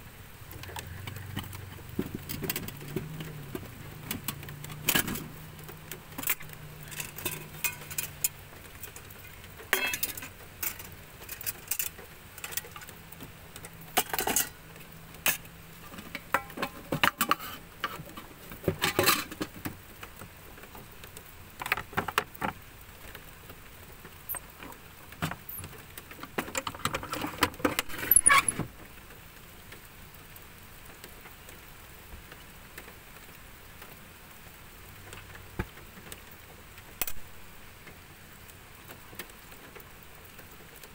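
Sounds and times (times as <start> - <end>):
metal cookware clinking and clattering: 6.2 - 8.4, 9.7 - 12.9, 14.0 - 14.6, 15.3 - 17.6, 18.7 - 19.6.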